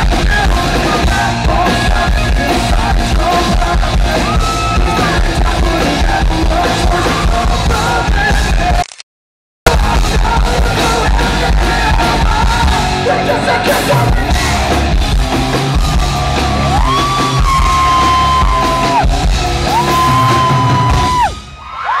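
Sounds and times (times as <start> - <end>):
rock band playing live: 0.0 - 8.8, 9.7 - 21.6.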